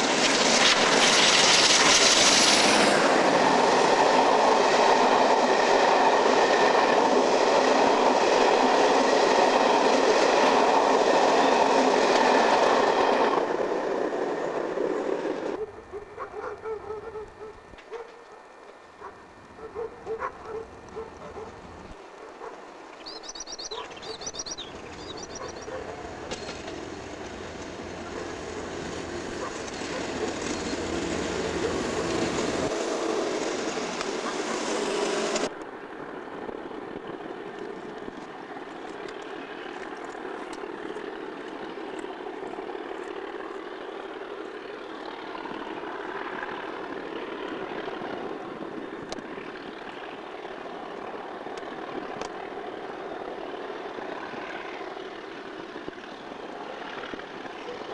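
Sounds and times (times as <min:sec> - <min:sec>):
diesel locomotive passing close: 0:00.0 - 0:17.8, 0:18.5 - 0:57.9
diesel locomotive engine drone: 0:00.0 - 0:57.9.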